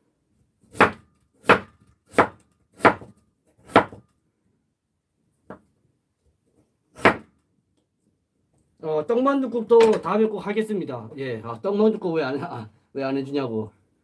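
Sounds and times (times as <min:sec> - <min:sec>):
knife chopping on wooden board: 0:00.7 - 0:04.0, 0:07.0 - 0:07.3.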